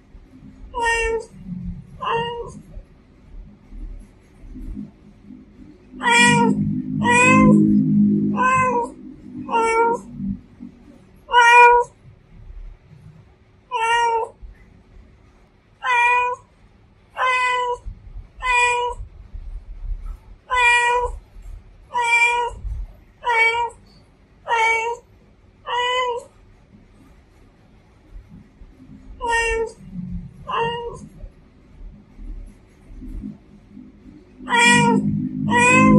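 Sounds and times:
cat meowing: 0.6 - 2.7, 6.0 - 10.2, 11.2 - 12.0, 13.7 - 14.4, 15.8 - 16.5, 17.2 - 19.0, 20.5 - 21.2, 21.9 - 23.8, 24.5 - 25.0, 25.7 - 26.3, 29.1 - 31.3, 34.4 - 35.9.

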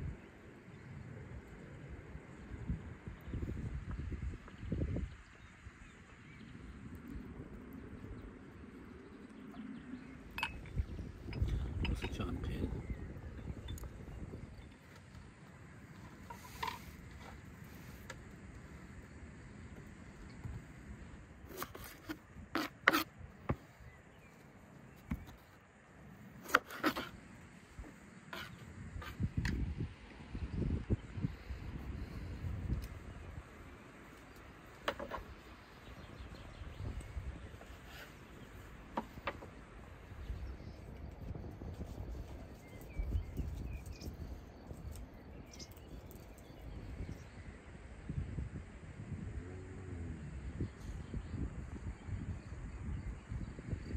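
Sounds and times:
faint bird chirps: 7.8 - 18.0, 30.3 - 47.8.

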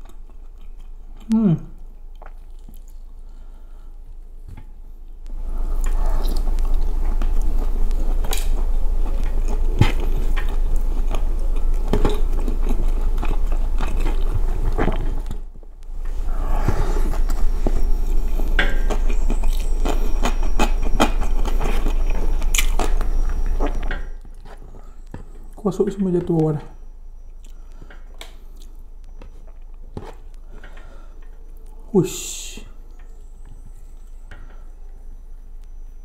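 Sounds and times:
person chewing and mouth smacking: 0.0 - 3.5, 5.1 - 25.7, 27.1 - 31.8
steady low hum: 0.0 - 36.0.

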